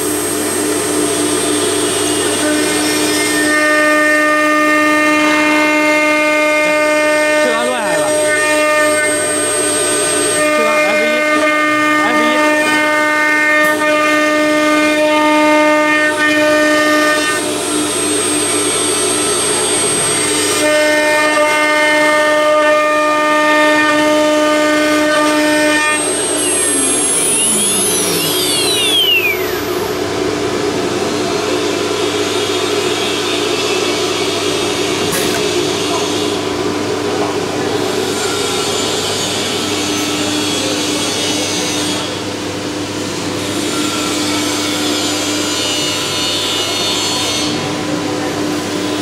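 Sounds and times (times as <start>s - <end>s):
steady rushing machine noise: 7.4s - 15.0s, 24.1s - 39.9s
router spindle whining: 25.0s - 30.2s.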